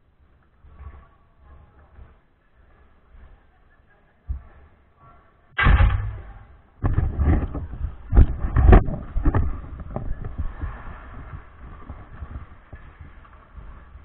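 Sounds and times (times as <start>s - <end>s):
skates scraping on ice: 0.1s - 5.3s, 6.9s - 14.0s
camera knocks and thumps: 5.6s - 10.4s
steady rushing noise: 5.6s - 14.0s.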